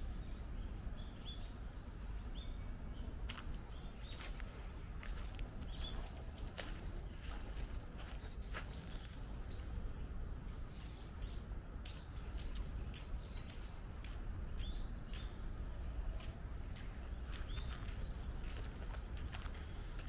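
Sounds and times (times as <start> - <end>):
birds chirping: 0.0 - 20.0
low outdoor rumble: 0.0 - 20.0.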